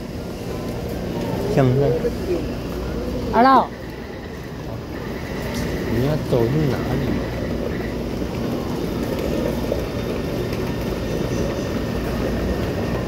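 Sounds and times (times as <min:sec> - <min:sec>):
murmur of passengers: 0:00.0 - 0:13.0
train rumbling and humming: 0:00.0 - 0:13.0.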